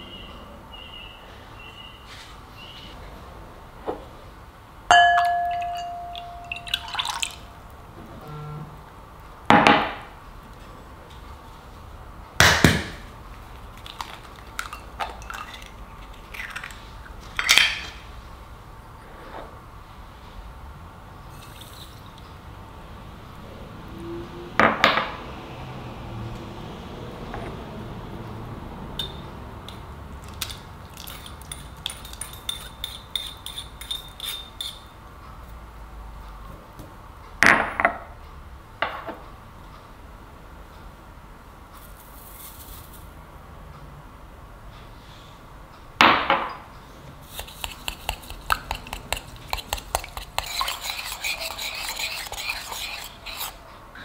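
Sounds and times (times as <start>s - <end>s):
utensil clinking against ceramic bowl: 4.9s - 7.4s, 14.0s - 16.7s, 30.3s - 34.8s, 47.4s - 53.6s.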